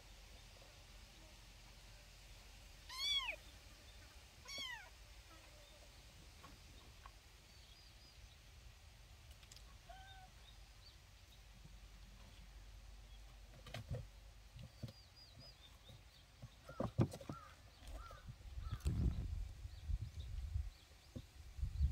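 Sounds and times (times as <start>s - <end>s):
kitten meowing: 2.9s - 3.4s, 4.4s - 4.9s.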